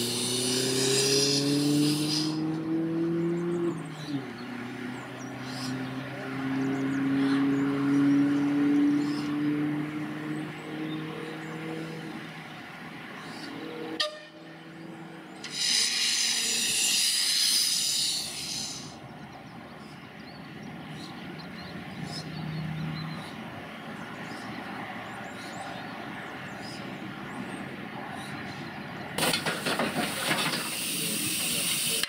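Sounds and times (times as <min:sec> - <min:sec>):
steam locomotive hissing: 0:00.0 - 0:02.4, 0:15.4 - 0:19.0, 0:29.2 - 0:32.0.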